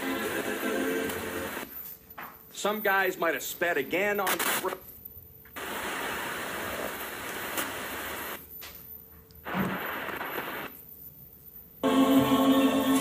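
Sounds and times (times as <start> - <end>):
radio static hiss: 0.0 - 1.8, 2.5 - 5.0, 5.6 - 8.6, 9.4 - 11.0.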